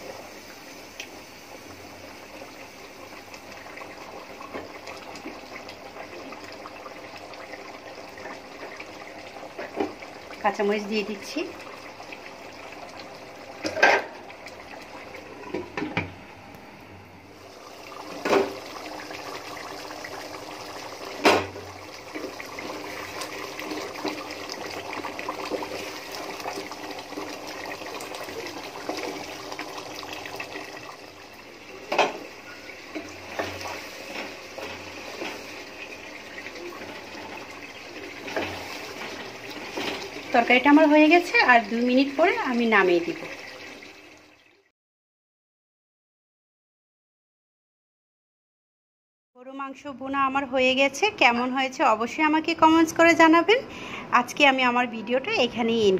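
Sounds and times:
curry bubbling in a pot: 0.0 - 16.0, 17.4 - 44.4.

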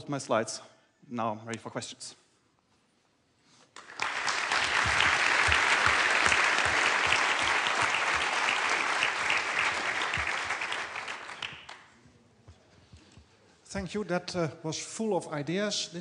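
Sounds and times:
audience applauding: 3.8 - 11.9.

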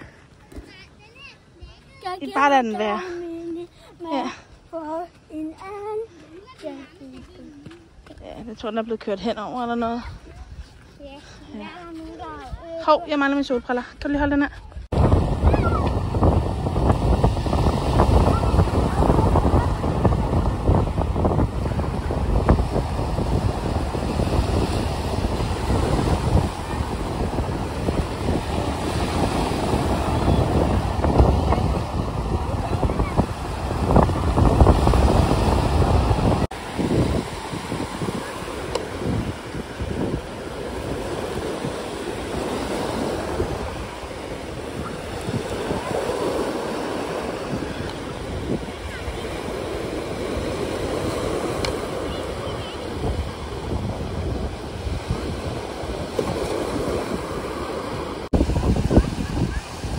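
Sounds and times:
wind buffeting microphone: 0.0 - 59.9
waves breaking on pebble beach: 14.9 - 59.9.

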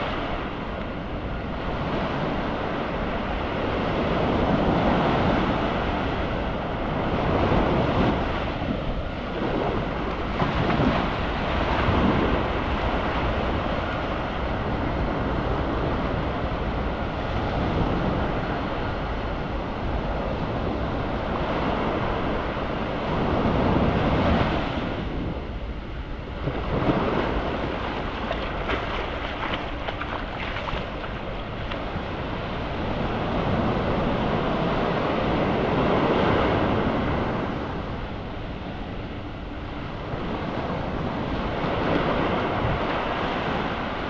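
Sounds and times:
surf washing onto beach: 0.0 - 19.2, 26.2 - 37.9
wind buffeting microphone: 0.0 - 44.0.

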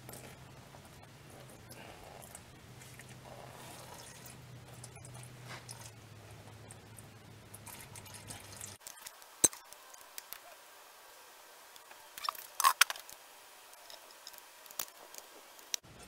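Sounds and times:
fluid trickling and dripping: 1.7 - 10.3.

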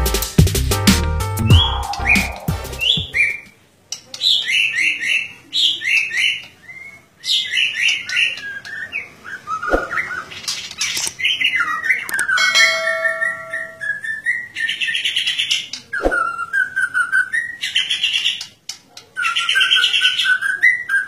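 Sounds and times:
bird singing whistled phrases: 1.4 - 3.5, 11.5 - 15.2, 16.0 - 17.9, 19.2 - 21.0.

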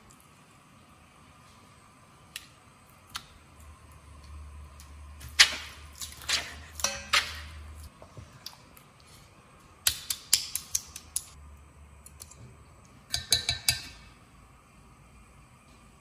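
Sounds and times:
wooden utensils clicking on metal bowl: 13.1 - 14.0.

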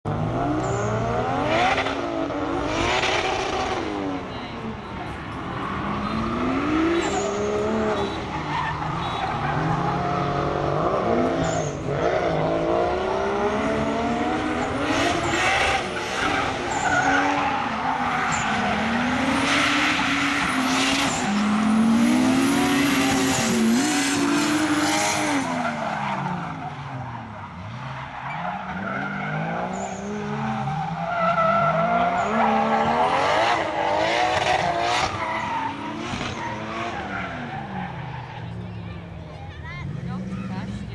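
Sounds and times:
car engines revving: 0.0 - 40.9.

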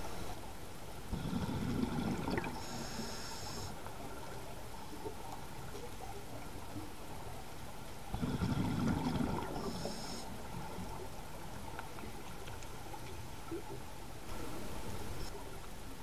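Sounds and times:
underwater background hiss: 0.0 - 16.0
diver's exhaled bubbles: 1.1 - 2.6, 8.1 - 10.0.

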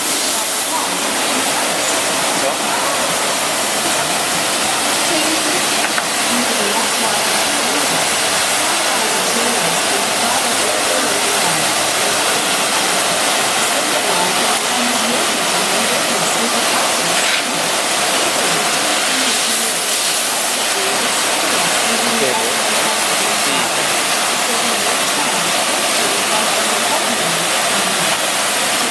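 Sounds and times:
dishwasher water spraying hiss: 0.0 - 28.9.

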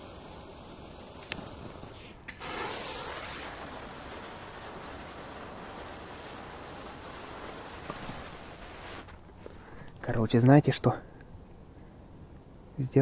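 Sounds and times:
ground-spinner firework hissing: 0.0 - 9.9.

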